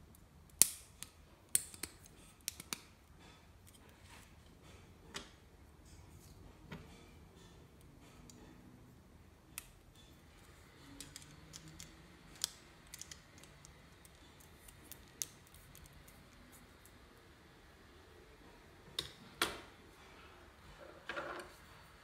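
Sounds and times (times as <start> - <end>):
faint room noise: 0.0 - 22.0
plastic pieces clicking together: 10.8 - 16.2.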